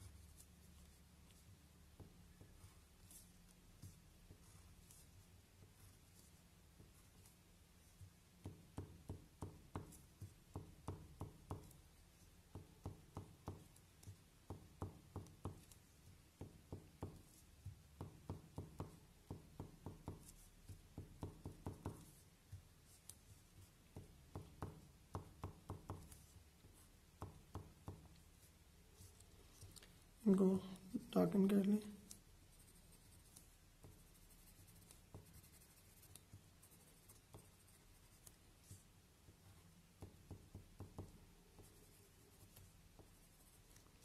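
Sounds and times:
pencil tapping on paper: 0:00.8 - 0:29.8, 0:31.9 - 0:44.0.

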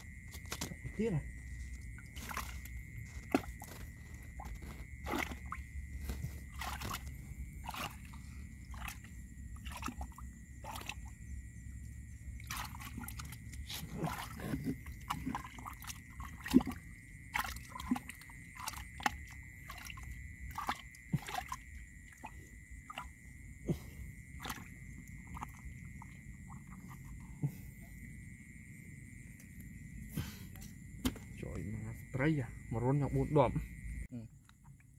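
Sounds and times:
hand squelching in wet mud: 0:00.0 - 0:11.2, 0:12.4 - 0:27.3.

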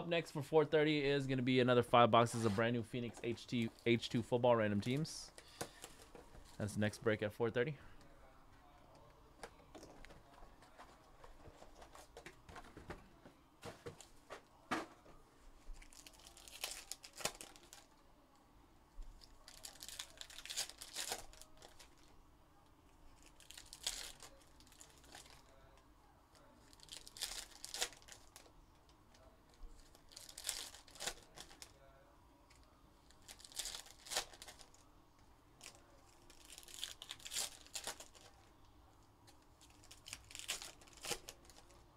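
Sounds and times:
foil packs crinkling and tearing: 0:15.8 - 0:17.9, 0:19.2 - 0:22.0, 0:23.1 - 0:25.6, 0:26.6 - 0:28.5, 0:29.8 - 0:31.7, 0:33.1 - 0:34.8, 0:35.6 - 0:38.4, 0:39.6 - 0:41.8.

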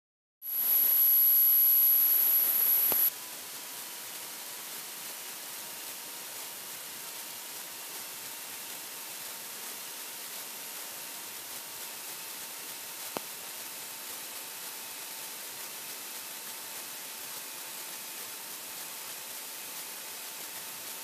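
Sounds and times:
electronic static hiss: 0:00.4 - 0:03.1, 0:04.4 - 0:21.0
thin high-pitched whine: 0:00.4 - 0:03.1.

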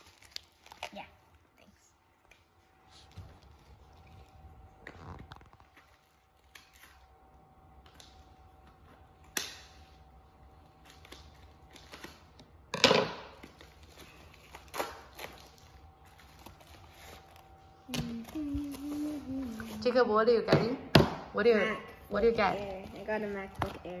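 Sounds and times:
plastic wrapper rustling: 0:00.0 - 0:07.3, 0:13.4 - 0:19.9.

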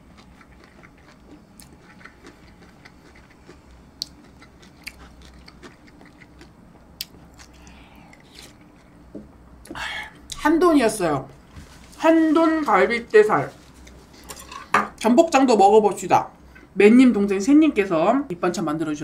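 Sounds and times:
wet chewing sounds: 0:00.0 - 0:09.0.

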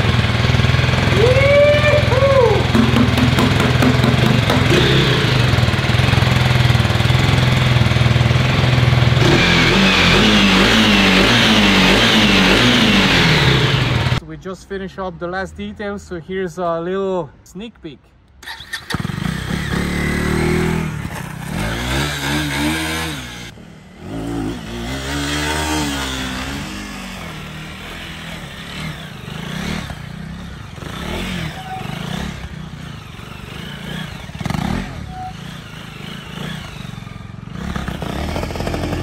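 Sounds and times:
clattering engine noise: 0:00.0 - 0:14.2
motorcycle engine revving: 0:00.0 - 0:14.2, 0:18.4 - 0:39.0.

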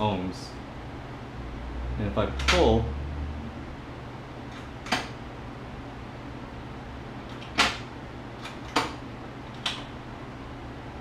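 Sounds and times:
low hum: 0:00.5 - 0:08.4.

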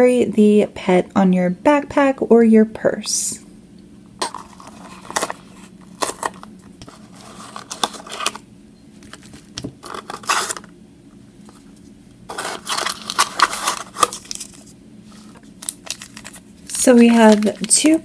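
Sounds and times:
cardboard rubbing and scraping: 0:04.5 - 0:08.4, 0:09.8 - 0:10.7, 0:12.3 - 0:15.4.

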